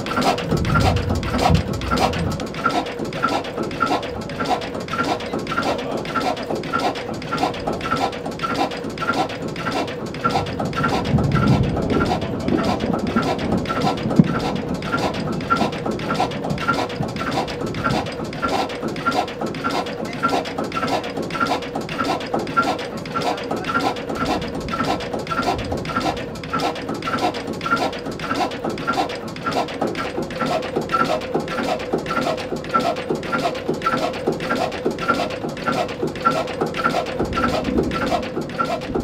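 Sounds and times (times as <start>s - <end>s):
stationary engine running: 0.0s - 39.0s
low rumble: 0.5s - 2.6s, 10.5s - 18.2s.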